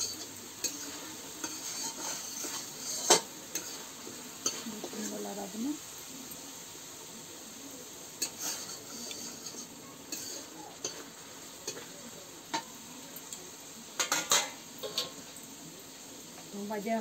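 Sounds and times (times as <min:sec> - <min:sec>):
metal spoon scraping a pan: 0:00.0 - 0:05.6, 0:08.0 - 0:13.4, 0:14.0 - 0:15.4
food sizzling in oil: 0:00.0 - 0:17.0.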